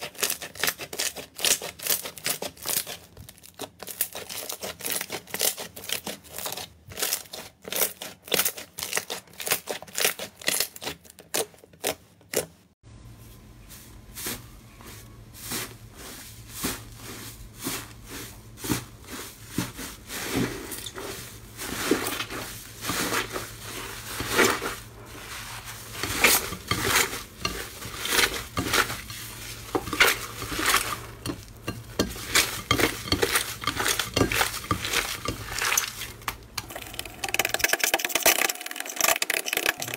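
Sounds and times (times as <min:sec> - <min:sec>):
low steady hum: 0:12.8 - 0:39.9.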